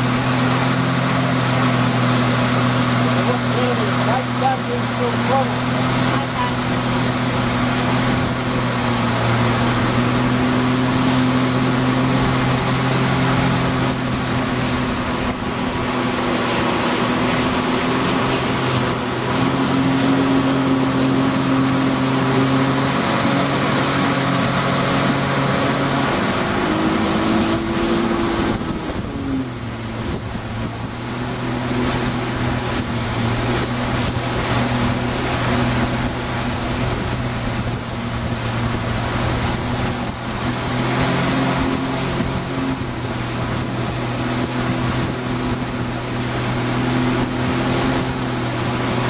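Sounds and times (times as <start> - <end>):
motorboat engine running: 0.0 - 49.0
water rushing past hull: 0.0 - 49.0
wind on microphone: 5.8 - 49.0.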